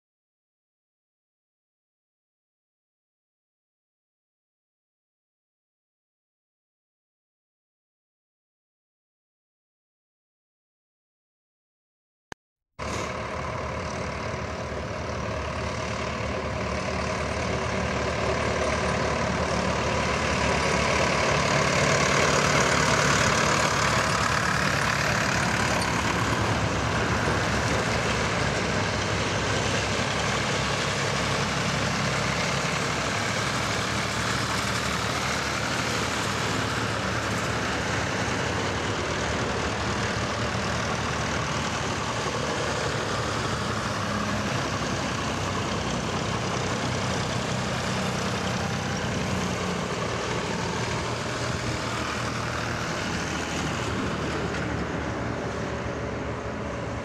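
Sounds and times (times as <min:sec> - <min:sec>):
tractors driving past: 0:12.8 - 0:57.0.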